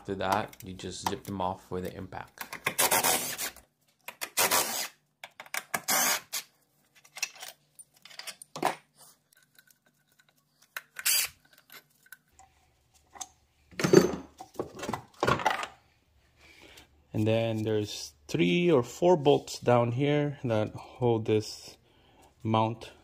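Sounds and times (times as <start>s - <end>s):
metal tools and bolts clinking: 7.0s - 8.8s.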